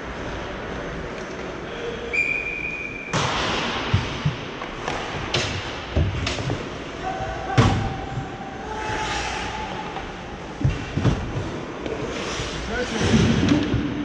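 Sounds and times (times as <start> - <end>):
high whistle tone: 2.0 - 3.2.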